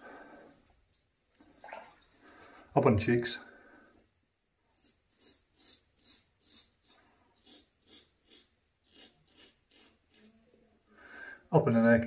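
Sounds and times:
razor scraping stubble: 4.6 - 10.4.

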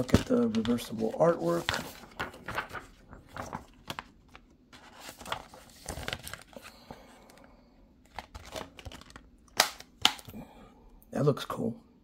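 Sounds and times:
paper rustling against plastic case: 0.0 - 6.7, 8.1 - 9.2.

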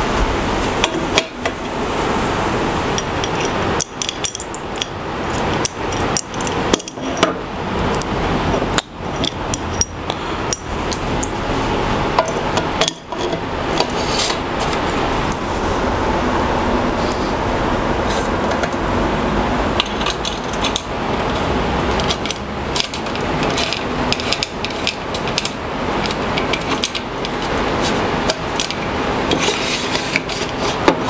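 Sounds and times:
steady background noise: 0.0 - 31.0
metal parts clicking and clinking: 3.0 - 11.4, 19.8 - 31.0.

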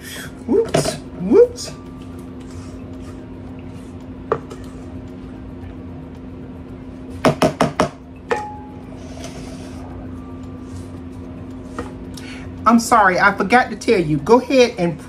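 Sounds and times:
steady low hum: 0.0 - 15.0
spatula knocking on metal bakeware: 7.2 - 8.5.

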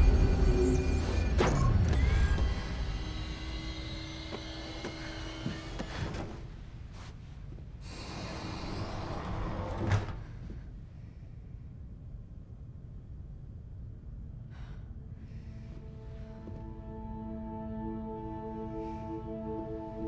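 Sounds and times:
low rumble: 0.0 - 3.4.

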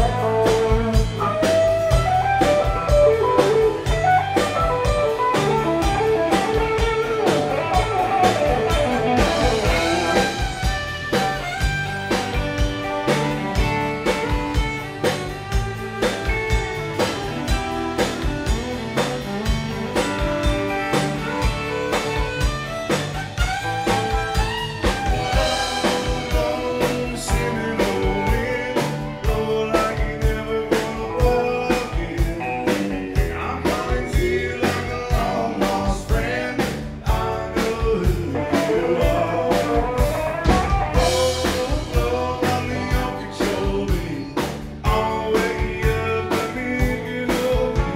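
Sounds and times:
country band playing: 0.0 - 47.9
drum kit beat: 0.0 - 47.9
guitars: 0.0 - 47.9.

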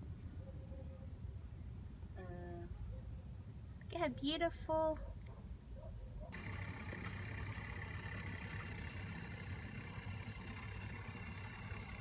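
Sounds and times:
motor humming: 6.3 - 12.0.

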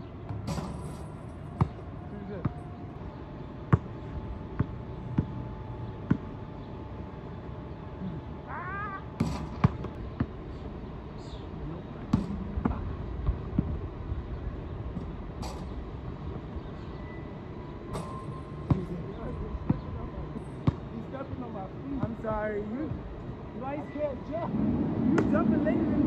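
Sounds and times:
basketball bouncing on asphalt: 0.3 - 2.6, 3.5 - 6.4, 9.2 - 10.5, 12.0 - 13.8, 18.0 - 19.0, 19.6 - 22.2, 22.8 - 23.4.

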